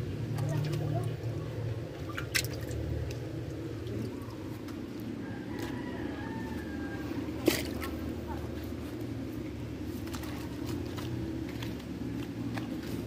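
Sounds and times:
hand splashing water in a tub: 0.0 - 4.9, 7.3 - 8.2.

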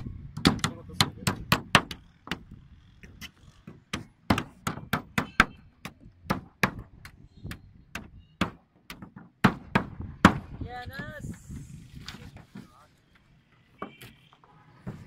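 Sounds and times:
hammers driving nails into wood: 0.4 - 2.6, 3.2 - 10.6.

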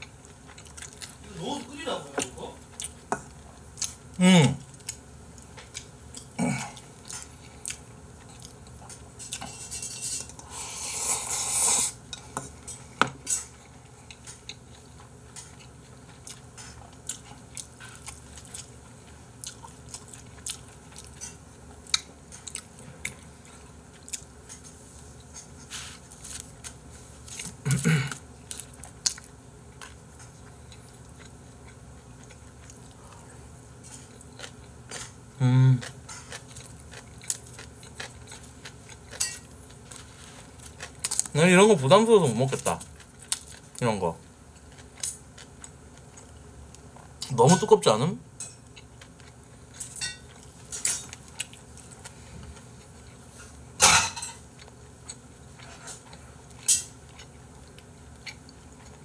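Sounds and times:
chewing and biting: 35.8 - 41.4.

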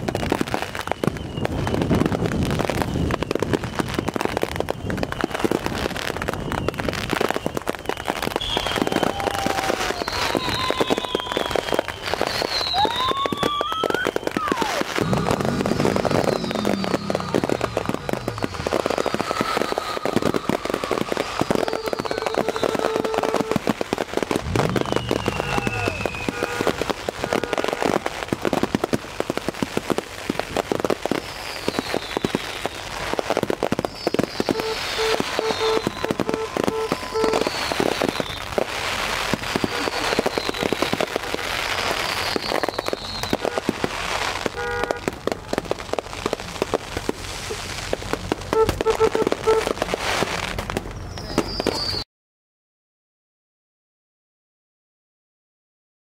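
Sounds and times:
fireworks crackling and banging: 0.0 - 52.0
high falling whistles: 2.7 - 23.4, 24.4 - 26.8, 31.2 - 33.0, 33.8 - 38.6, 39.4 - 41.1, 41.8 - 43.4, 51.0 - 52.0.

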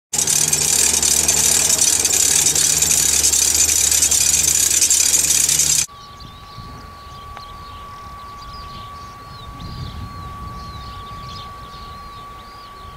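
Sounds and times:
jet engine hissing: 0.1 - 5.9
faint steady whine: 0.2 - 12.9.

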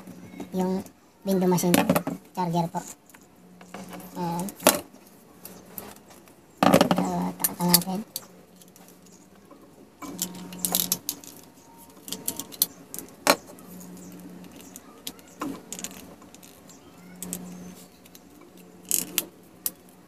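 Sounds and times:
plastic parts clicking and rattling: 10.0 - 20.0.

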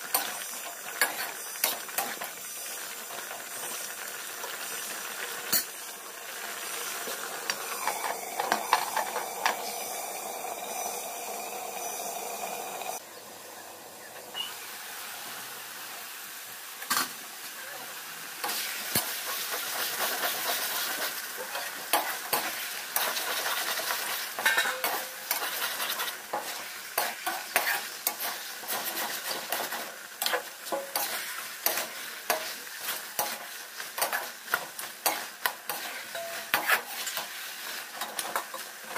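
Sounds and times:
curry sizzling in a pan: 0.0 - 13.0, 14.4 - 38.9
metal spatula scraping a pan: 0.1 - 2.3, 18.4 - 38.9.

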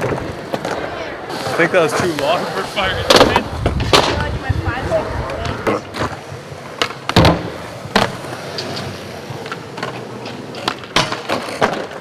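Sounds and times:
skateboard wheels rolling: 0.0 - 12.0
skateboard landing clacks: 3.0 - 4.4, 5.2 - 12.0.

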